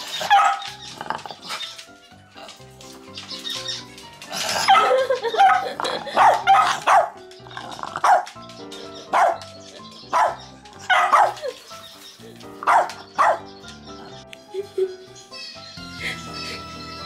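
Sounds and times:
background music: 0.0s - 17.0s
dog barking: 0.2s - 0.7s, 4.6s - 7.2s, 8.0s - 8.4s, 9.1s - 9.5s, 10.1s - 11.6s, 12.6s - 13.5s.

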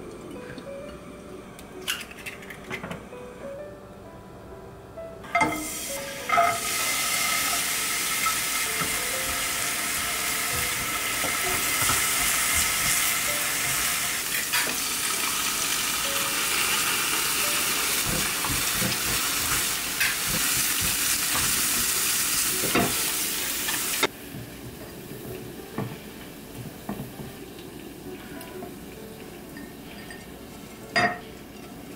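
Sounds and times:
food sizzling in frying pan: 5.4s - 31.9s
utensil knocking against pan: 18.0s - 21.6s.

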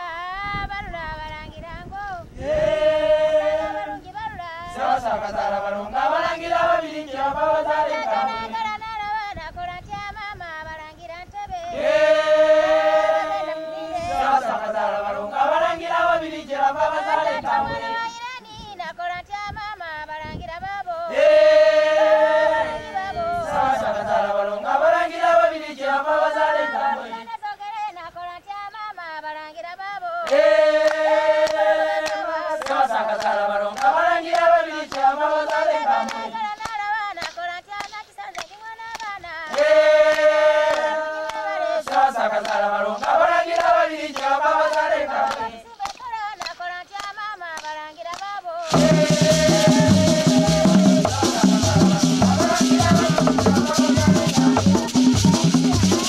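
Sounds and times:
group singing unaccompanied: 2.0s - 56.0s.

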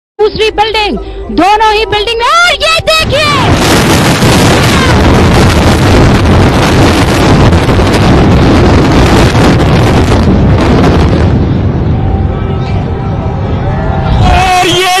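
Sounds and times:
rumble of collapsing buildings: 2.4s - 15.0s
microphone noise: 2.9s - 14.6s.

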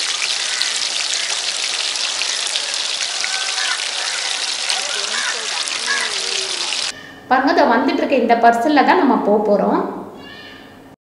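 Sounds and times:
fish deep-frying in hot oil: 0.0s - 6.9s.

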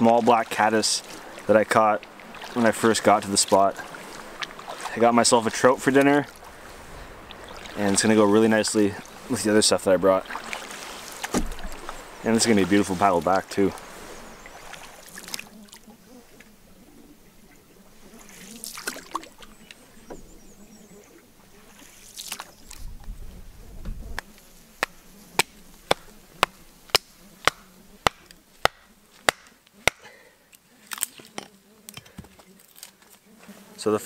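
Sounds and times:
soft rustling swishes: 0.0s - 17.0s
wood chopping knocks: 11.3s - 11.9s, 24.8s - 30.1s.

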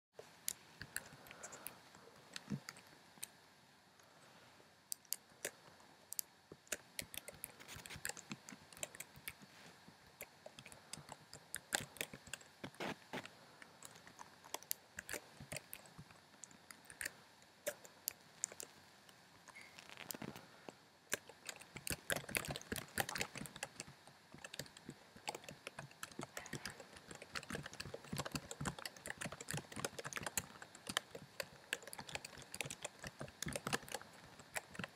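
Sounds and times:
typing on a computer keyboard: 6.6s - 9.5s, 10.2s - 18.8s, 21.1s - 34.9s.

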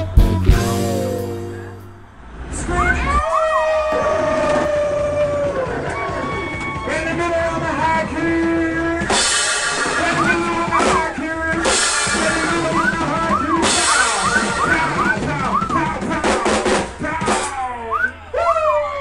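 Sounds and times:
funk band playing: 0.0s - 2.1s, 9.0s - 17.7s
cymbal crashes: 9.1s - 12.8s.

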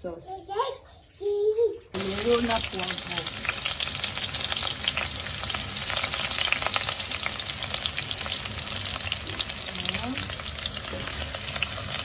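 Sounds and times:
onion rings frying in oil: 2.0s - 12.0s.

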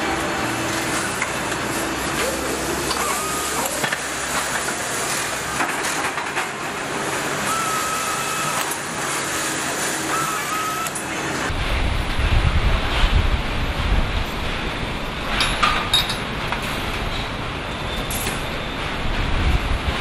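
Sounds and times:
hiss of running machinery: 0.0s - 15.3s
short machine whines: 2.2s - 4.4s, 7.3s - 11.5s.

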